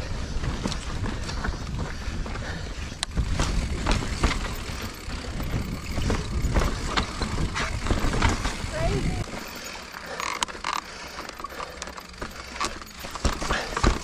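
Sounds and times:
sharp clacks and rattles: 3.0 - 14.0
bike rolling over rock rumble: 3.1 - 14.0.

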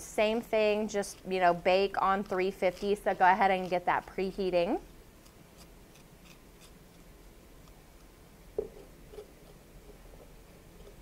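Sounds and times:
spoon scraping squash: 0.8 - 4.6, 5.2 - 7.8.

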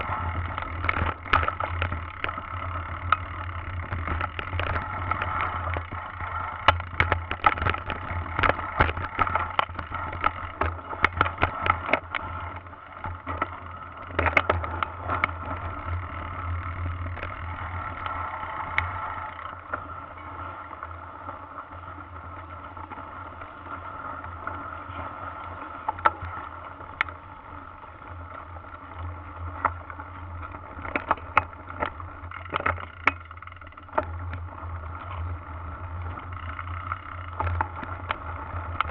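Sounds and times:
bike rattling knocks over bumps: 0.0 - 20.6
bike low rumble: 0.0 - 38.9.

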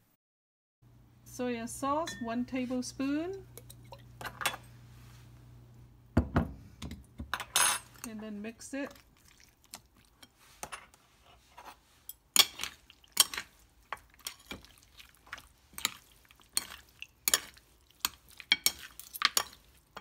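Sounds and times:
metal utensils clinking on ceramic plate: 7.3 - 8.1, 11.6 - 14.7, 15.8 - 20.0.

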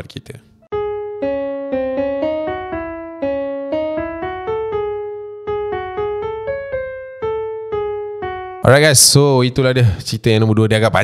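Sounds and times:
slow piano melody: 0.6 - 10.0.

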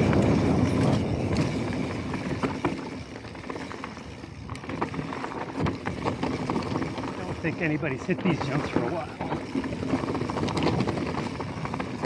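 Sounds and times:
wind on microphone: 0.0 - 3.1
bike rattling over bumps: 0.0 - 12.0
bike tyres rumbling on dirt: 0.0 - 12.0.

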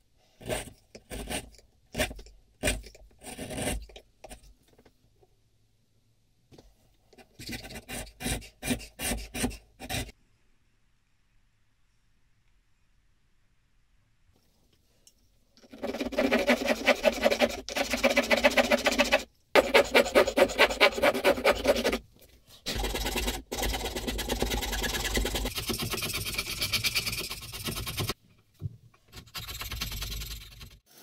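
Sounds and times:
float rasping wood: 15.7 - 22.0, 22.7 - 28.2.

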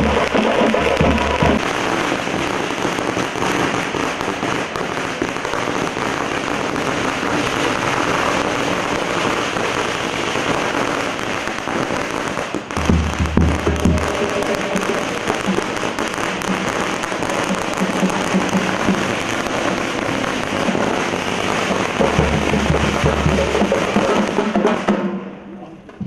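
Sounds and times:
deep drumbeat: 0.0 - 1.7, 12.8 - 21.0, 21.6 - 25.4
firecrackers crackling: 0.0 - 26.0.

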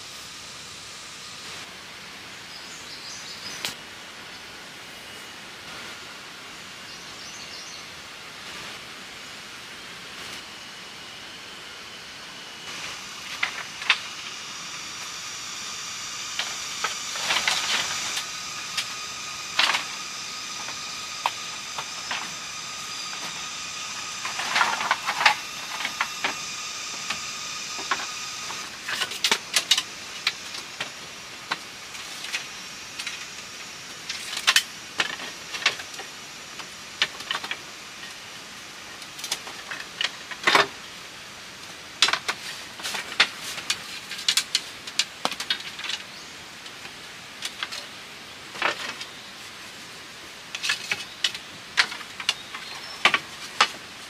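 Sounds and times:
steady high drone: 0.0 - 41.6.

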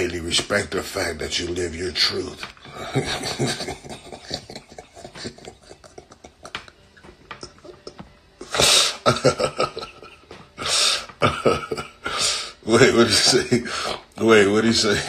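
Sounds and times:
man laughing: 2.6 - 13.9.

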